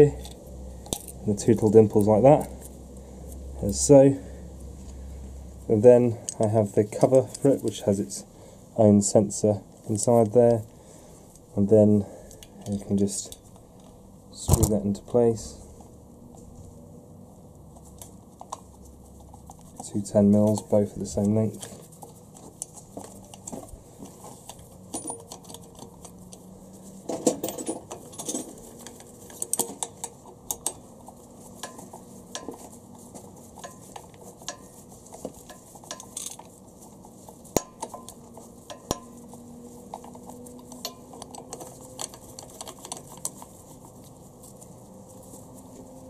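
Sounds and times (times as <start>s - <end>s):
metal bolts clicking and clinking: 24.4s - 26.4s, 27.1s - 30.9s, 35.4s - 36.5s, 37.5s - 43.6s.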